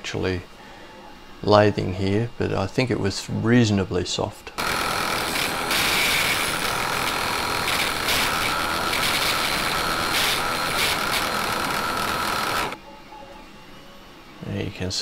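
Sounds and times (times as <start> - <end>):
chisel scraping spinning wood: 4.6 - 12.8
lathe motor whine: 4.6 - 12.8.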